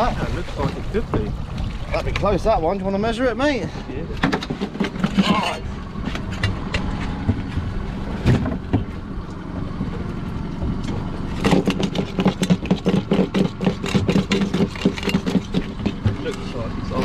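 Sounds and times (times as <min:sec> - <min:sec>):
boat engine idling: 0:00.0 - 0:17.0
knocks and clatter on deck: 0:04.2 - 0:05.4, 0:06.0 - 0:09.0, 0:11.4 - 0:16.4.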